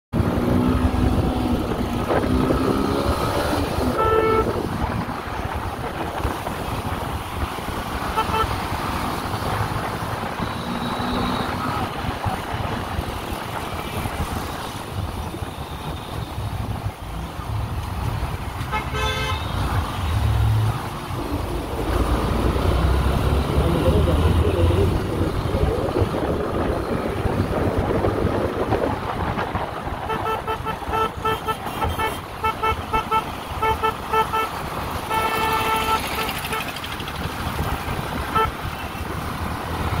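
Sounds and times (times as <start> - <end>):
wind noise: 0.2 - 32.2
vehicle horn honking: 3.9 - 4.6, 8.2 - 8.5, 18.7 - 19.6, 30.1 - 36.7
motorcycle engine: 34.5 - 40.0.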